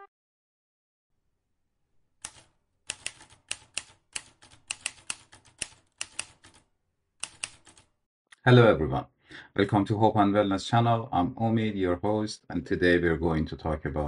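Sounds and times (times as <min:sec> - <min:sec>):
typewriter key clacks: 0:02.2 - 0:06.6.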